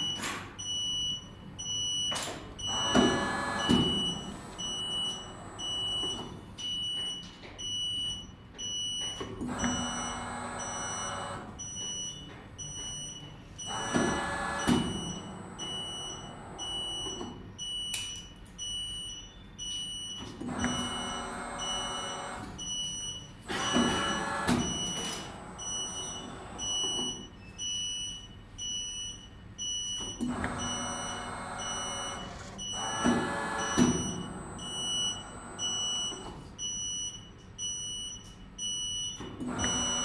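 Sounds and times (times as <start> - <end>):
mechanical running noise: 23.5 - 26.9, 30.3 - 36.3, 39.5 - 40.0.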